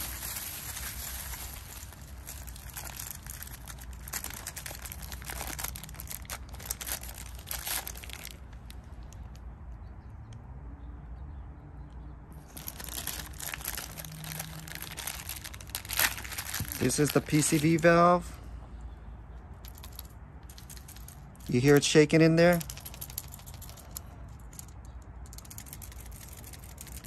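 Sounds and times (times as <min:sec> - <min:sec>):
plastic packaging crinkling: 0:00.0 - 0:08.8, 0:12.4 - 0:17.9, 0:22.6 - 0:27.0.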